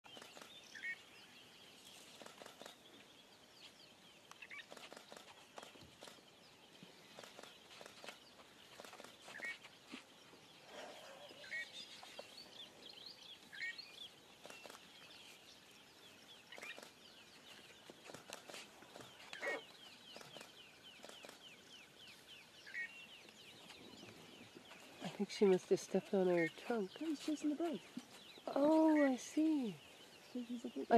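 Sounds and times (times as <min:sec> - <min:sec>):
high bird chirps: 0:16.3 - 0:30.9.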